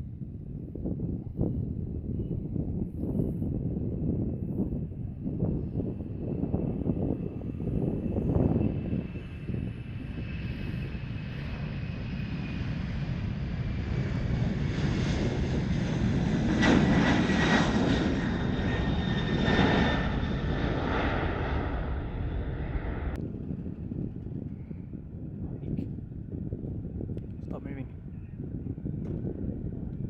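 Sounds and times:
jet engines roaring: 0:05.9 - 0:24.0.

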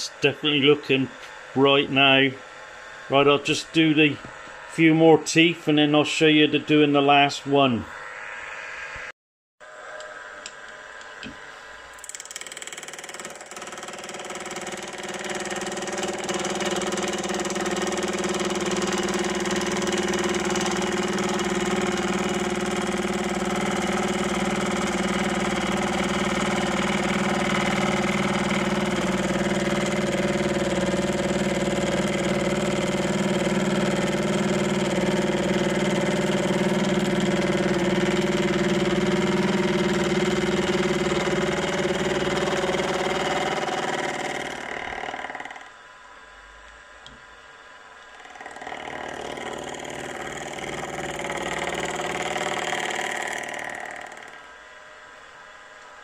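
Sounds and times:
milling machine motor humming: 0:10.0 - 0:45.8, 0:48.0 - 0:54.6.

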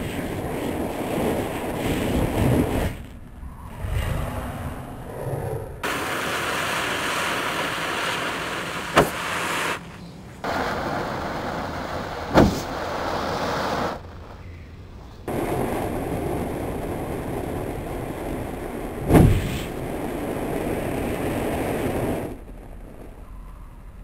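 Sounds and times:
black powder hissing: 0:00.0 - 0:03.1, 0:05.8 - 0:14.1
sharp pop: 0:08.9 - 0:09.4, 0:12.3 - 0:12.8, 0:19.1 - 0:19.8.

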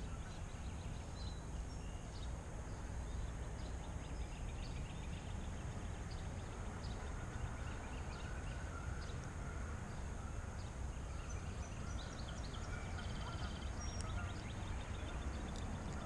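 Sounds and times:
bird chirps: 0:09.9 - 0:16.0.

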